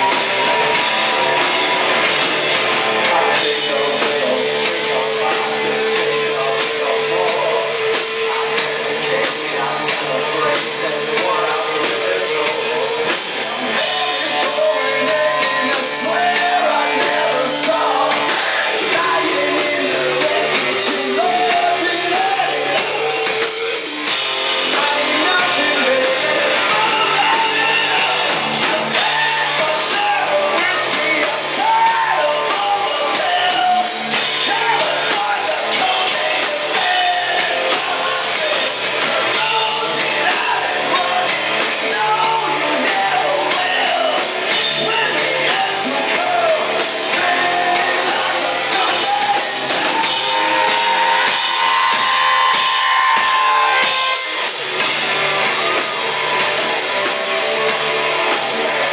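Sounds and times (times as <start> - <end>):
drums: 0.0 - 58.9
electric guitar: 0.0 - 58.9
singer shouting and singing: 0.0 - 58.9.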